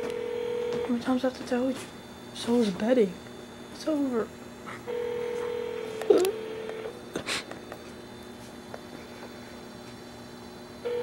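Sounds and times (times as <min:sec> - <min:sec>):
phone beep tone: 0:00.0 - 0:01.0, 0:04.9 - 0:06.9
faint hum: 0:00.0 - 0:11.0.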